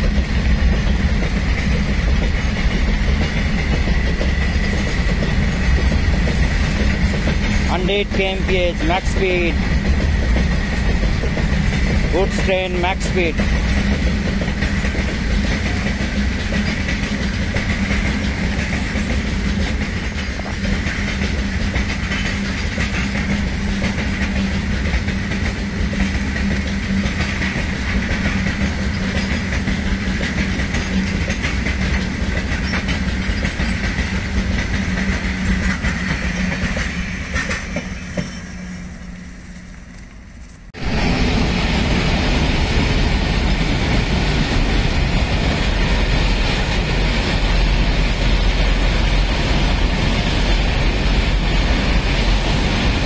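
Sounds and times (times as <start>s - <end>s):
train wheels clattering over rail joints: 0.0s - 39.6s.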